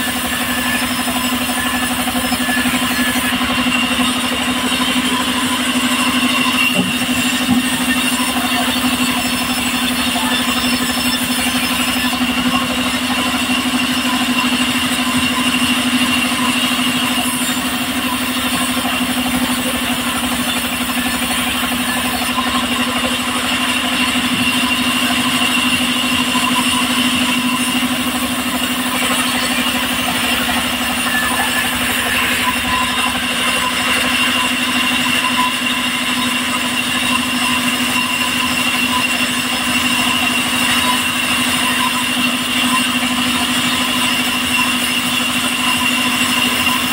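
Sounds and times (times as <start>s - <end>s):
sawmill engine and blade whining: 0.0s - 46.9s.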